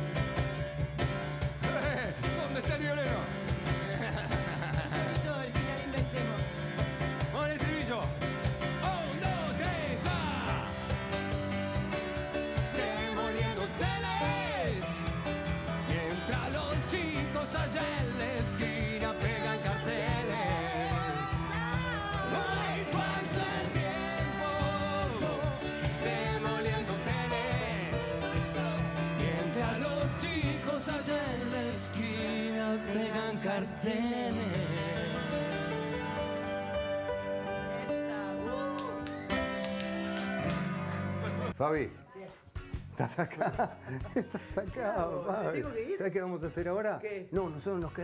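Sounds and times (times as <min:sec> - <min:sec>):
cajon beat: 0:00.0 - 0:32.5
live rock band playing: 0:00.0 - 0:41.6
piano accompaniment: 0:00.0 - 0:41.6
man singing into a microphone: 0:08.8 - 0:11.0, 0:12.7 - 0:15.0, 0:15.8 - 0:36.2
woman singing: 0:18.6 - 0:23.0.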